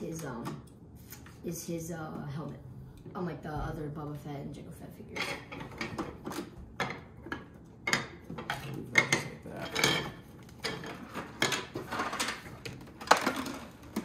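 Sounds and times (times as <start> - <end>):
plastic toy parts clattering on wood: 5.5 - 14.0.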